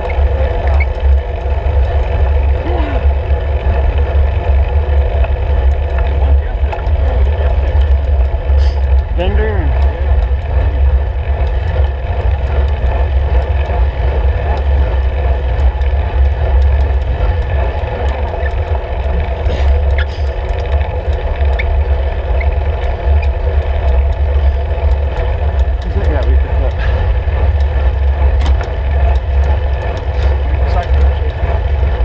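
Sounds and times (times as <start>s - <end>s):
road vibration rumble: 0.0s - 32.0s.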